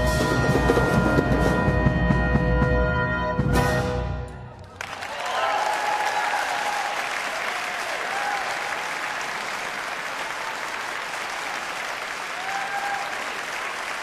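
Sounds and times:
audience applauding: 4.6s - 14.0s
pitched calls from audience: 5.0s - 14.0s.

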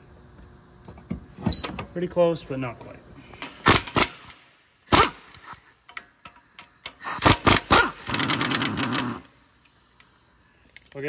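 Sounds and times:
ratchet wrench clicking: 4.9s - 11.0s.

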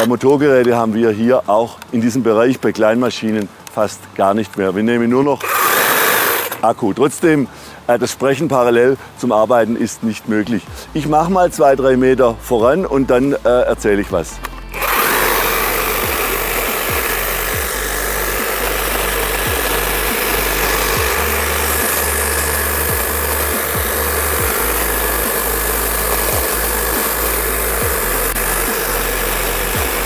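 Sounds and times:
hedge trimmer running: 5.4s - 6.7s, 14.2s - 30.0s
music with low beat: 10.7s - 30.0s.

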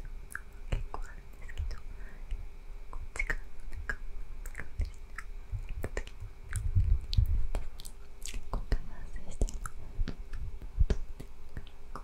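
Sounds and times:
wet tongue and lip clicks: 2.9s - 8.8s.

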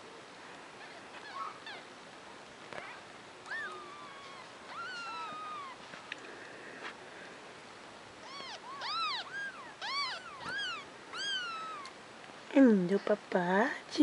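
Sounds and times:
kitten mewing: 2.8s - 5.8s, 8.2s - 11.9s.

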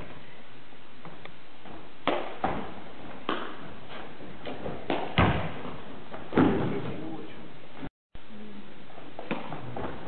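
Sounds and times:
feet kicking footbag: 1.0s - 6.9s
shoes landing on wooden floor: 4.4s - 6.9s.

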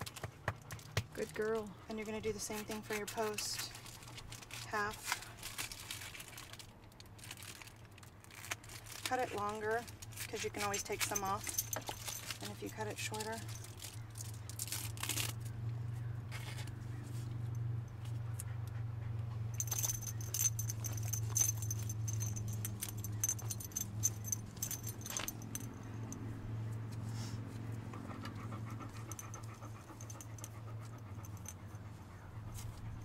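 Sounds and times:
plastic rustling in a bag: 3.0s - 15.5s
metallic jingling and clicking: 9.0s - 15.4s, 19.4s - 26.8s, 28.0s - 31.9s.

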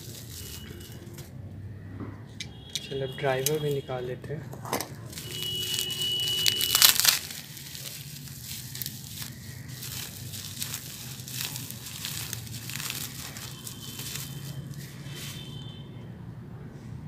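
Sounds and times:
bubble wrap crinkling: 0.0s - 1.3s, 3.4s - 3.9s, 4.8s - 15.8s
bubble wrap tearing crackle: 0.0s - 1.3s, 4.9s - 15.7s.

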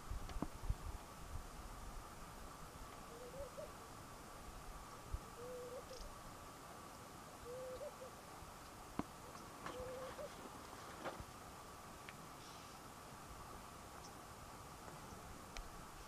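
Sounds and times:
faint high hum: 0.0s - 16.0s
distant bird hooting: 3.0s - 3.8s, 5.3s - 6.2s, 7.4s - 8.2s, 9.2s - 10.5s.

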